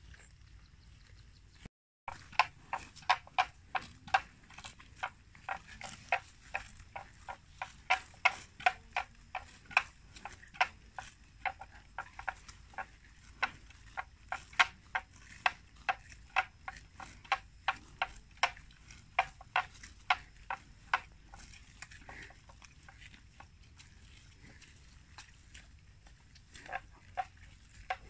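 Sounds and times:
buffalo tearing grass: 0:02.1 - 0:28.0.

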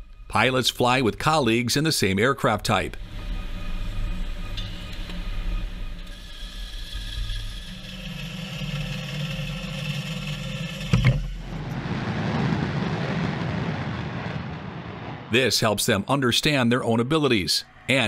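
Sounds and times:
mechanical whine: 0:00.0 - 0:15.2
jet engine on afterburner: 0:07.2 - 0:16.1.

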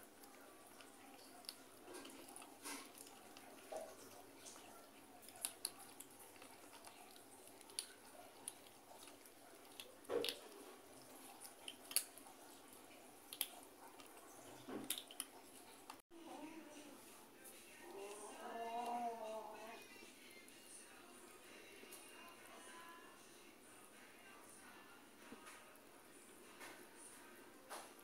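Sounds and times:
cats crunching kibble: 0:00.0 - 0:16.0.

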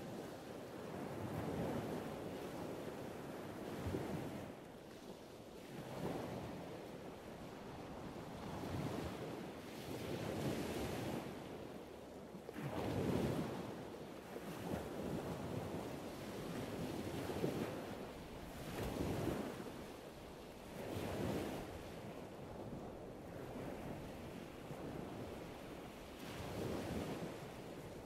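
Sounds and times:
small sea waves breaking: 0:12.5 - 0:28.0.

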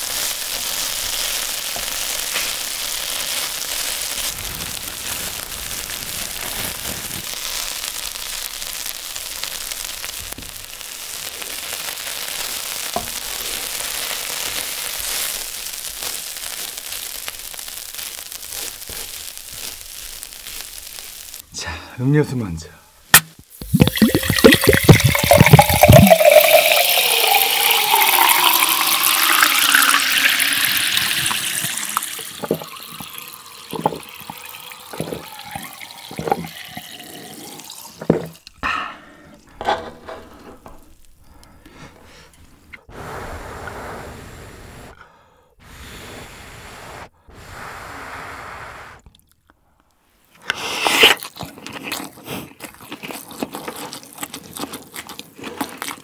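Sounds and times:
drink pouring into glass jar: 0:23.6 - 0:38.6.

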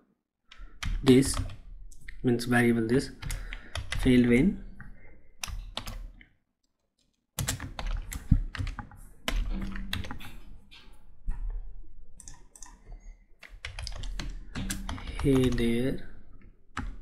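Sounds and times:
typing on a computer keyboard: 0:00.5 - 0:01.6, 0:03.2 - 0:04.1, 0:05.4 - 0:06.2, 0:07.4 - 0:10.4, 0:12.2 - 0:15.8.

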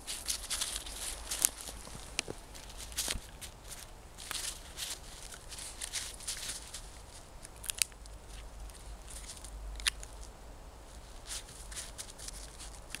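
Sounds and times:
dog scraping in crusty snow: 0:00.1 - 0:06.9.

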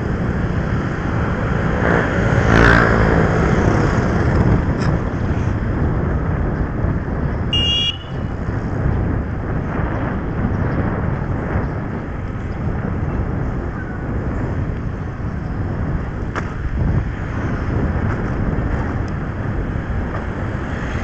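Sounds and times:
motor vehicle passing: 0:00.0 - 0:06.4, 0:14.4 - 0:21.0
wind and road noise: 0:00.0 - 0:21.0
short high-pitched horn beep: 0:07.5 - 0:08.3.

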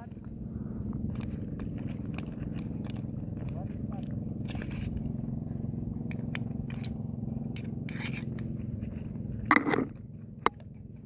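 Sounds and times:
pliers clicking and scraping: 0:06.1 - 0:06.9, 0:07.6 - 0:08.4.

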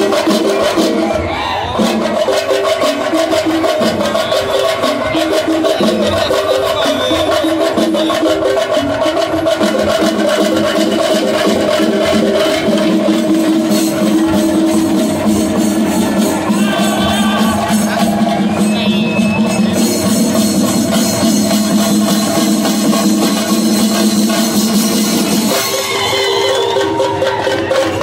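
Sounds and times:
cymbals: 0:00.0 - 0:28.0
fast drumming: 0:00.0 - 0:28.0.

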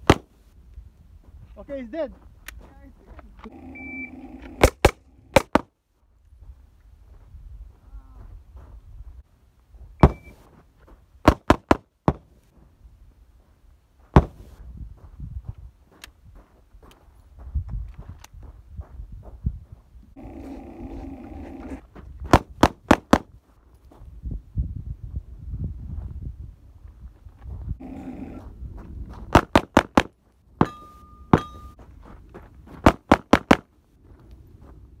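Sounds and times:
pistol shots: 0:04.6 - 0:05.7.

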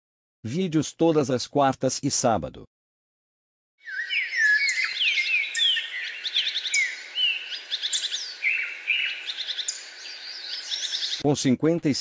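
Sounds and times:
songbirds chirping and whistling: 0:03.8 - 0:11.2.

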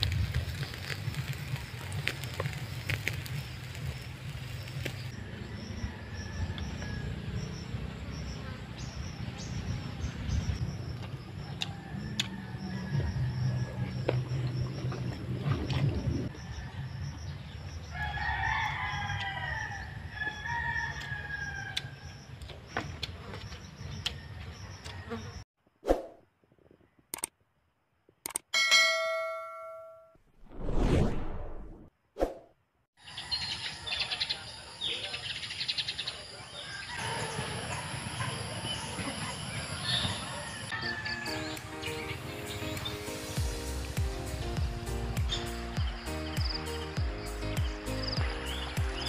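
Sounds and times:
crackling charcoal and fat: 0:00.0 - 0:07.0, 0:10.2 - 0:25.2
rooster crowing: 0:05.1 - 0:07.5, 0:11.4 - 0:14.0, 0:16.3 - 0:22.2, 0:36.5 - 0:41.6
sharp clicks: 0:27.1 - 0:27.4, 0:28.2 - 0:28.5.

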